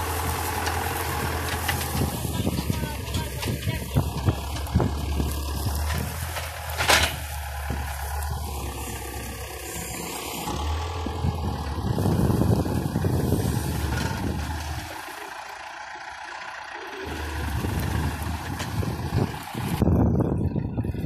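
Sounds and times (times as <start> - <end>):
tractor engine running: 0.0 - 21.0.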